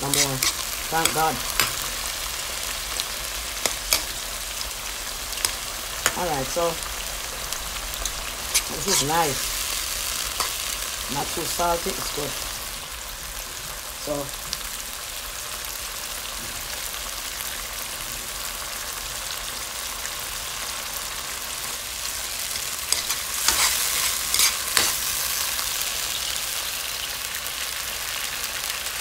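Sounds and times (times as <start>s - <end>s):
metal spoon scraping a pan: 0.0s - 2.2s, 3.5s - 4.3s, 8.0s - 10.8s, 22.5s - 25.5s
vegetables sizzling in a frying pan: 0.0s - 29.0s.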